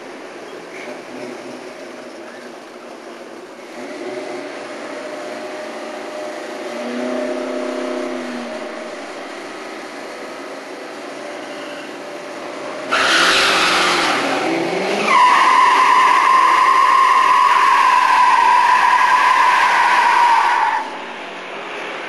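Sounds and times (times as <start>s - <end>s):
drag race car engines: 0.0s - 22.0s
high-pitched tone: 6.8s - 9.6s.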